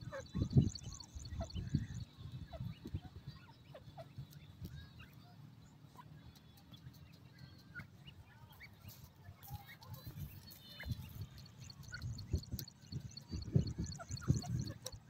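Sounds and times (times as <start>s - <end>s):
chicks peeping: 9.6s - 15.0s.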